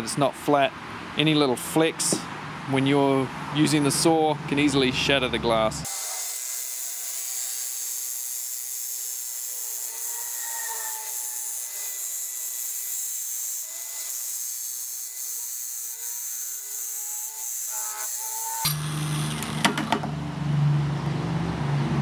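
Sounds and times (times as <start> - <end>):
glass cutter whirring: 5.9 - 20.2.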